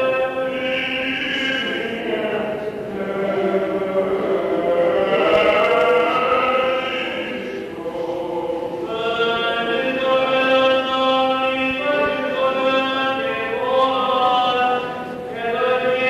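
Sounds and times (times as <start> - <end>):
liturgical chant singing: 0.0 - 16.0.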